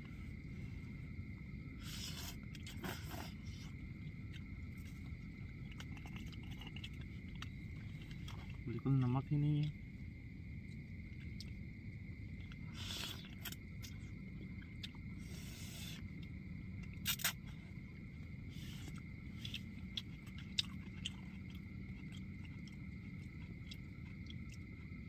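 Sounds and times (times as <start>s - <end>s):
people chewing: 1.8s - 8.9s, 12.3s - 25.0s.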